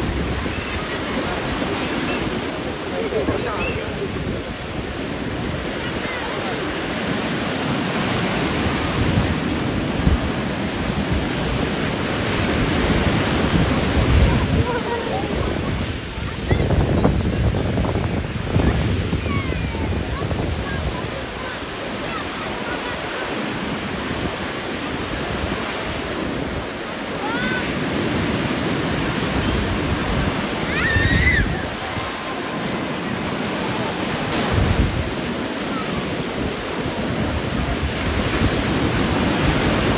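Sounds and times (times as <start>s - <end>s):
wind buffeting microphone: 0.0s - 23.0s, 27.8s - 39.9s
small waves breaking on sand: 0.0s - 39.9s
people calling out: 27.1s - 27.8s.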